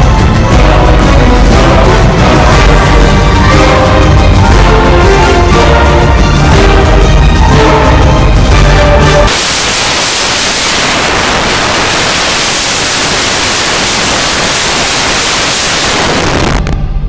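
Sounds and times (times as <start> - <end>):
white noise hiss: 9.3 - 16.8.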